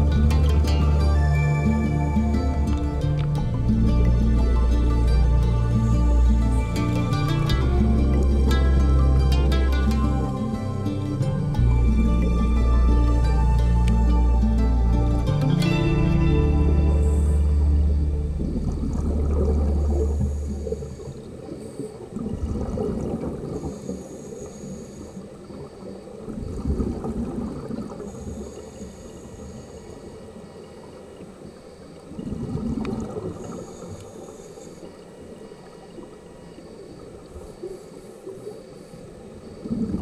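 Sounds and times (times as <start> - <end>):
background music: 0.0 - 20.2
bubbles rushing: 17.9 - 20.8.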